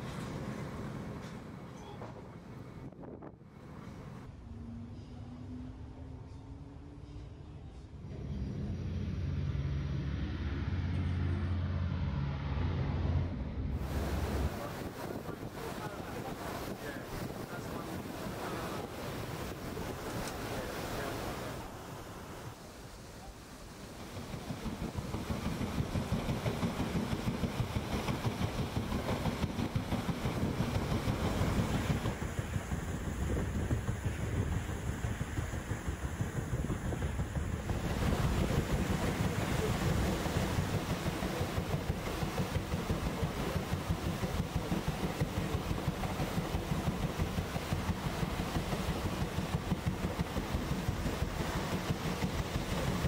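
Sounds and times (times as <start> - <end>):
paddle wheel churning water: 0.0 - 4.3, 13.8 - 53.0
wind on microphone: 28.2 - 51.4.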